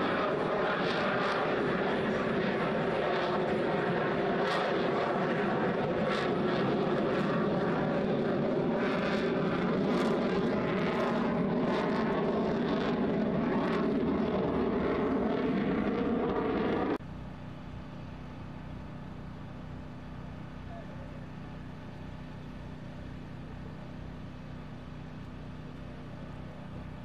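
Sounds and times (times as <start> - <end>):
loud jet roar: 0.0 - 17.0.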